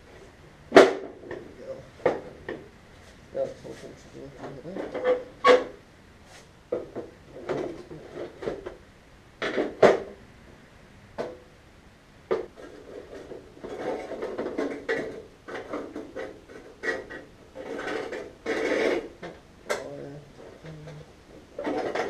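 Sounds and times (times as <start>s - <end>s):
metal rubbing and scraping: 7.3s - 8.8s, 12.5s - 22.0s.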